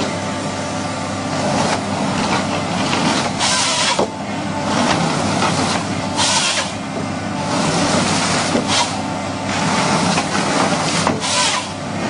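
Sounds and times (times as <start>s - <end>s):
forestry harvester running: 0.0s - 12.0s.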